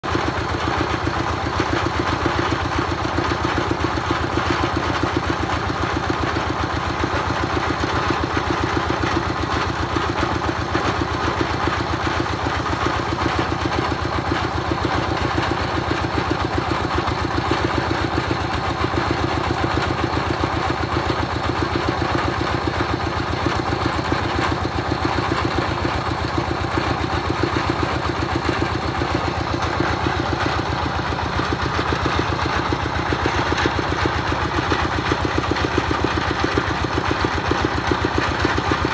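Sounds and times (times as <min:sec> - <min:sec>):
drilling rig engine running: 0:00.1 - 0:38.9.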